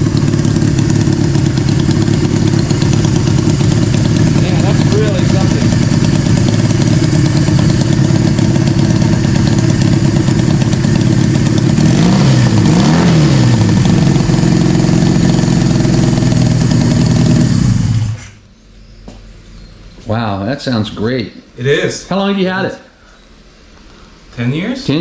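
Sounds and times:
motorcycle engine idling: 0.0s - 18.2s
engine throttle blips: 0.0s - 18.5s.

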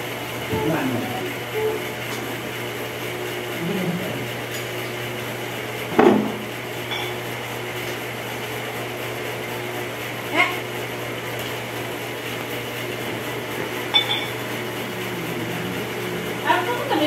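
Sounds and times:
steady low hum: 0.0s - 7.1s, 10.3s - 17.0s
tableware knocking: 14.0s - 14.4s.

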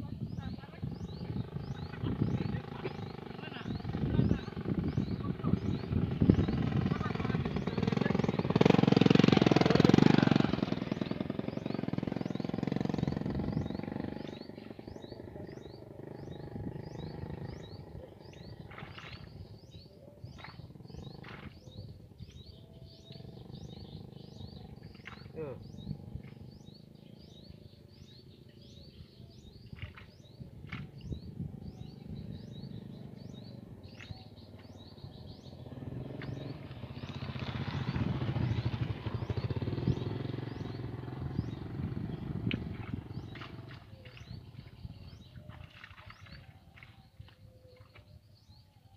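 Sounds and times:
small bird chirping: 0.0s - 48.9s
road vehicle passing: 0.4s - 19.6s, 31.5s - 45.2s.

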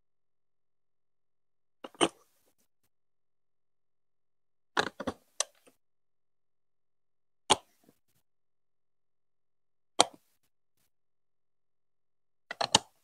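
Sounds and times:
plastic blocks clicking: 1.8s - 2.3s, 12.5s - 13.0s.

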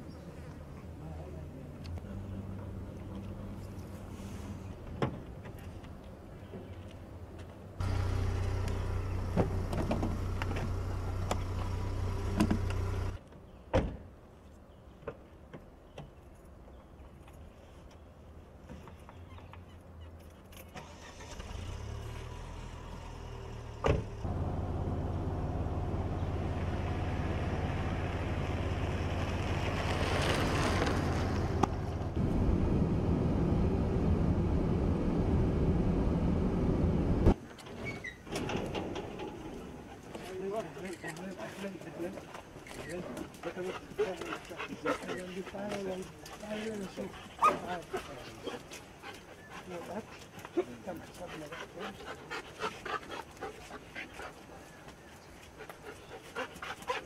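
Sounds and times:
car driving: 7.8s - 13.2s, 20.8s - 37.4s
car engine running: 7.8s - 13.2s.

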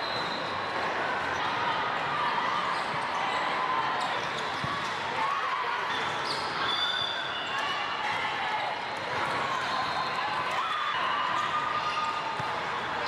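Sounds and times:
crowd chatter: 0.0s - 13.0s
shoes squeaking on court: 4.0s - 5.0s.

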